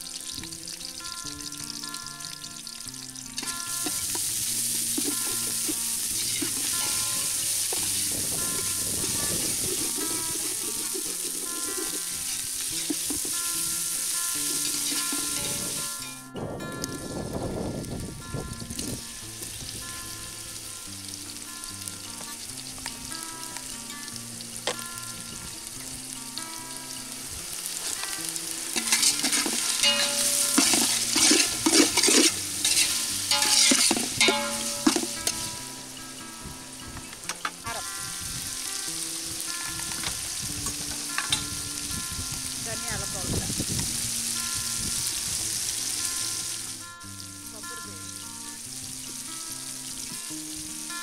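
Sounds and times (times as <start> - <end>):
vegetables sizzling in oil: 0.0 - 16.2, 17.9 - 51.0
metal ladle scraping pot: 4.9 - 13.5, 28.6 - 35.7.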